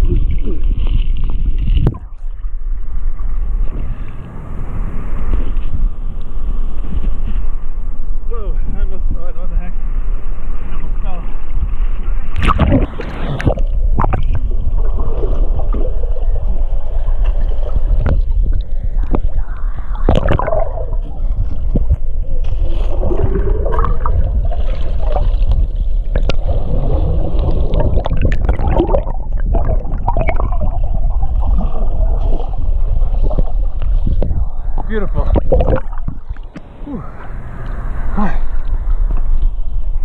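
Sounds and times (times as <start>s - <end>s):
gurgling bubbles: 0.0s - 3.9s, 12.4s - 36.7s
underwater rumble of moving water: 0.0s - 40.0s.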